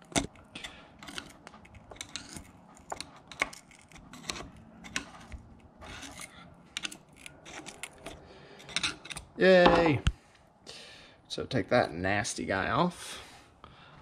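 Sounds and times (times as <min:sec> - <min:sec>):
screwdriver clicking and scraping metal: 0:00.0 - 0:09.4.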